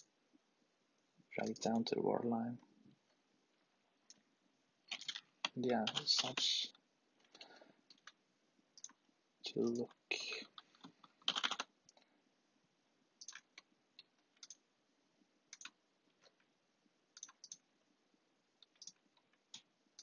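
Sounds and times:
computer mouse clicking: 1.4s - 1.8s, 7.2s - 8.2s, 8.8s - 9.0s, 10.5s - 12.0s, 13.2s - 13.7s, 14.4s - 14.6s, 15.5s - 16.4s, 17.2s - 17.6s, 18.6s - 20.0s.

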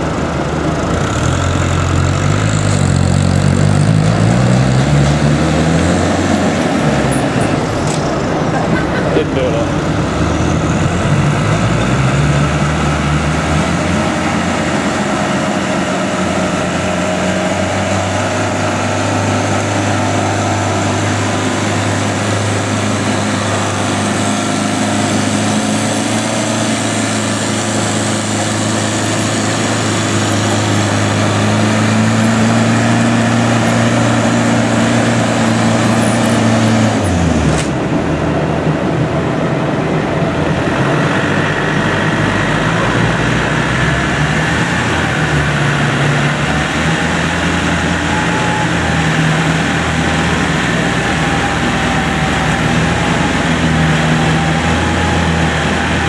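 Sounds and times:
engines working hard: 0.0s - 56.0s.

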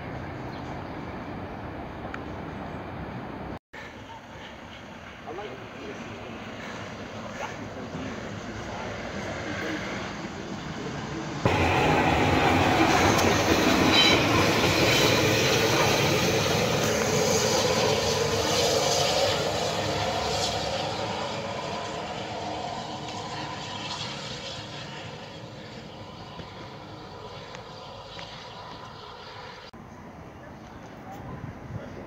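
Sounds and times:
steam locomotive passing: 0.0s - 30.3s.

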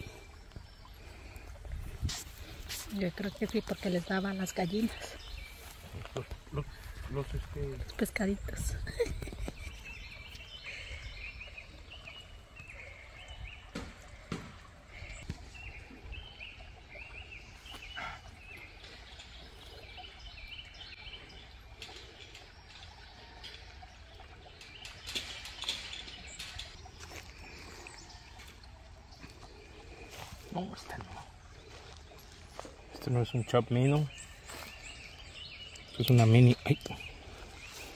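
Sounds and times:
birds singing: 0.0s - 37.9s
wind on microphone: 1.6s - 2.8s.

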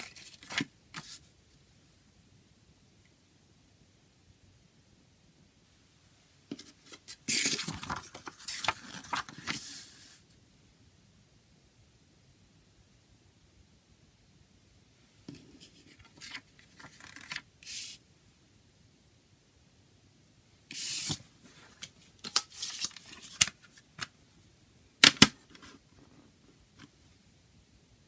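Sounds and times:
paper booklet rustling: 0.0s - 1.2s, 6.6s - 10.2s, 15.8s - 18.0s, 20.7s - 24.1s
plastic case snapping shut: 25.0s - 25.5s.

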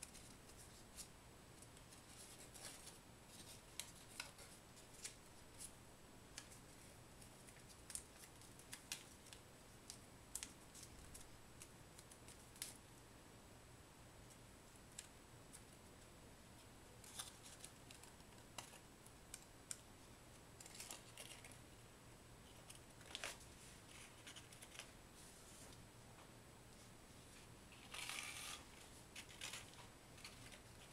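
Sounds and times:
paper crinkling and clicking: 0.0s - 5.7s, 6.4s - 12.8s, 17.0s - 19.8s, 20.6s - 21.6s, 22.5s - 24.9s, 27.7s - 30.9s.

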